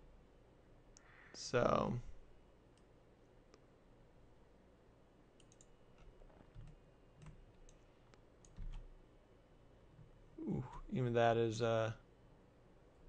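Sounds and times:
computer mouse clicks: 0:05.4 - 0:08.9.

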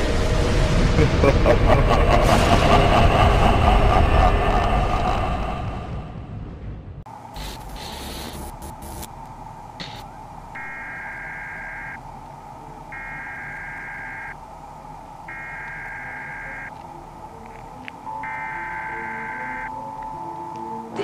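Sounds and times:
steady droning tone: 0:08.0 - 0:21.0
electronic alert beeps: 0:15.3 - 0:16.7, 0:18.1 - 0:20.2.

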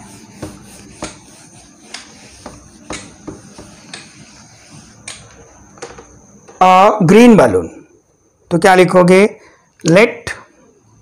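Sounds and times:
duster wiping whiteboard: 0:00.0 - 0:05.7.

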